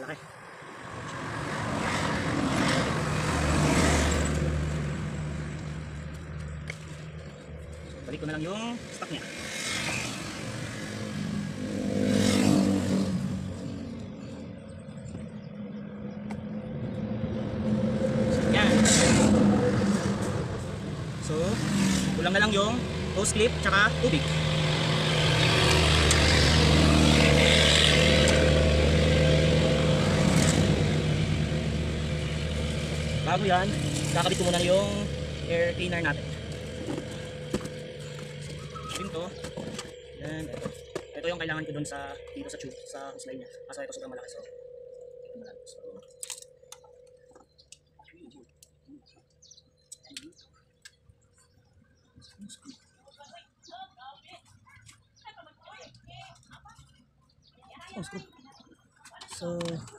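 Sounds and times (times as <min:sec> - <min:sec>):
vehicle passing by: 0:00.0 - 0:46.1
car engine idling: 0:19.8 - 0:51.1.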